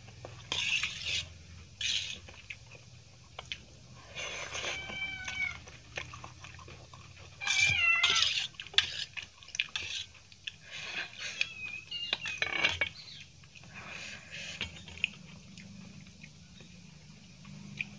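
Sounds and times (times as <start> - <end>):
chewing: 0.0 - 17.9
fork scraping a steel plate: 0.4 - 2.2, 7.5 - 9.2
cat meowing: 4.5 - 5.7, 7.4 - 8.4.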